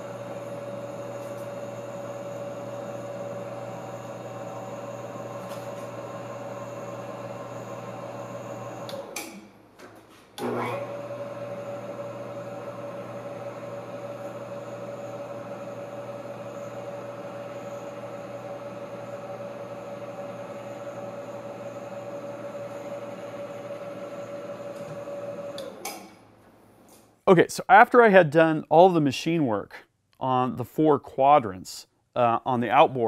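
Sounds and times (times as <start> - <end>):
milling machine humming: 0.0 - 9.4, 10.4 - 26.3.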